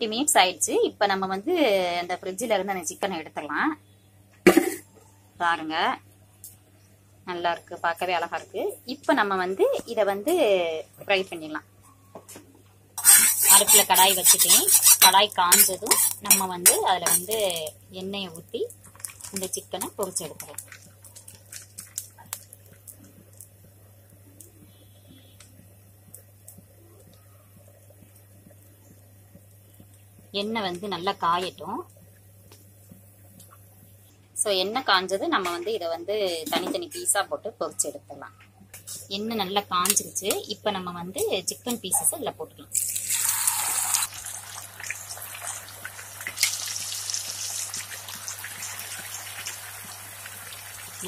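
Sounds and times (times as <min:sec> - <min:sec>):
steady low hum: 0:00.0 - 0:42.9
chicken sizzling in hot oil: 0:13.0 - 0:23.5, 0:42.7 - 0:51.0
deep-frying crackling: 0:13.0 - 0:34.0, 0:38.7 - 0:51.0.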